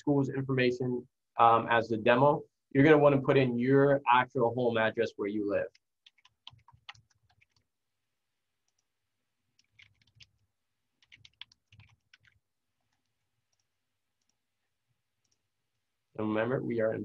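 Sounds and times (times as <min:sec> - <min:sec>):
typing on keyboard: 0:05.7 - 0:07.7, 0:09.5 - 0:10.4, 0:11.0 - 0:14.4.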